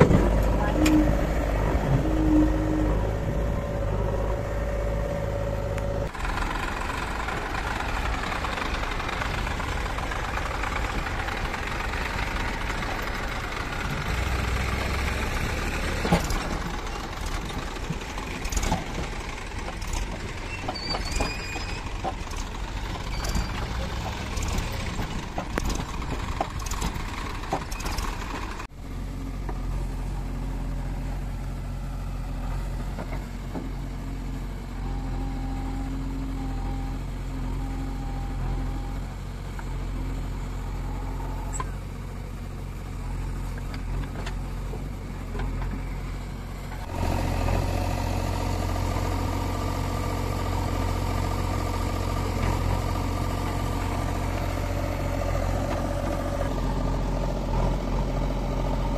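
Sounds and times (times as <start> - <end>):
tractor diesel engines running: 0.0 - 58.9.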